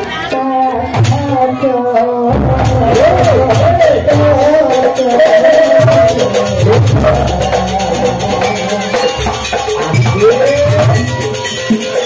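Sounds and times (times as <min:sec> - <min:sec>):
drums: 0:00.0 - 0:12.0
quick rattling beat: 0:01.0 - 0:12.0
wavering melody line: 0:02.9 - 0:12.0.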